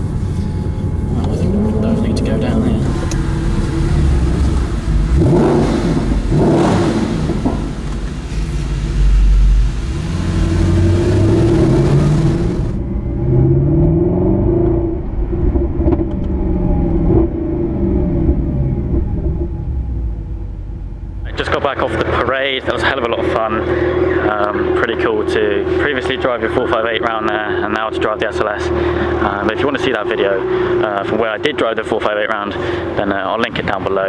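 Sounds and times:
car engine accelerating in cabin: 0.0s - 34.0s.

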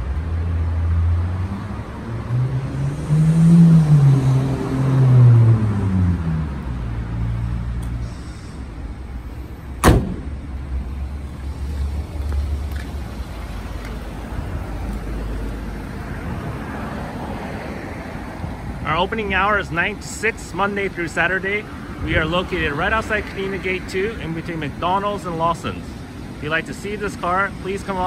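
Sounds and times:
low engine rumble: 5.5s - 17.4s
car trunk lid slamming: 9.8s - 10.5s.

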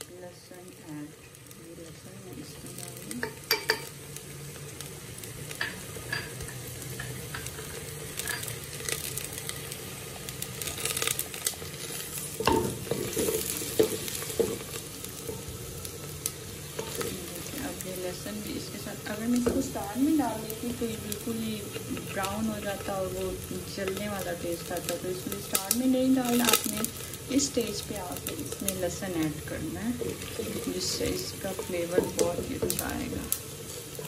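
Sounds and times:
onions sizzling in hot oil: 0.0s - 34.0s
wooden spoon scraping pot: 29.9s - 34.0s.

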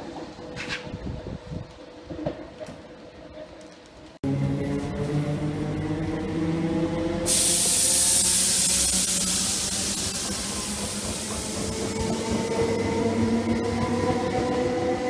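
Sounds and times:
electric train motors whining: 4.6s - 14.1s
loud steady hiss: 7.3s - 12.1s.

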